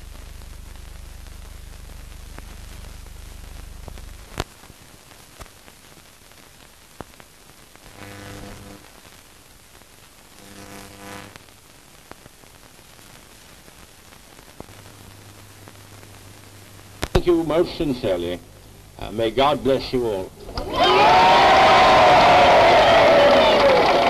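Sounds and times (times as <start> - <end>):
low steady hum: 0.0 - 4.4, 14.1 - 23.3
film soundtrack hiss and crackle: 0.0 - 24.0.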